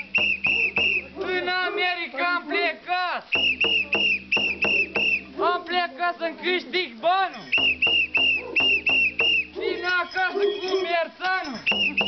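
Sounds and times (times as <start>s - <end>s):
whistle blasts: 0.0s - 1.2s, 3.3s - 5.3s, 7.4s - 12.0s
rising and falling pitched calls: 0.0s - 1.9s, 3.3s - 12.0s.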